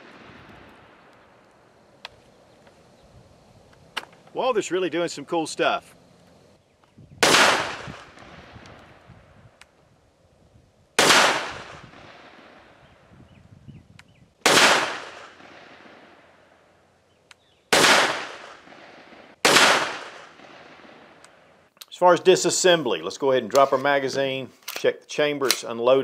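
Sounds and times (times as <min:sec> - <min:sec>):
pistol shots: 0:07.2 - 0:08.7, 0:11.0 - 0:12.7, 0:14.4 - 0:16.1, 0:17.7 - 0:21.2.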